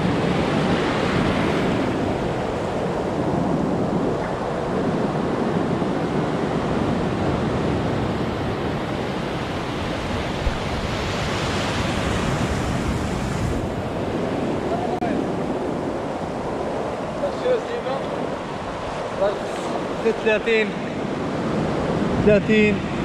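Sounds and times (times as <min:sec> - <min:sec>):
ocean surf breaking: 0:00.0 - 0:23.0
wind buffeting microphone: 0:00.0 - 0:23.0.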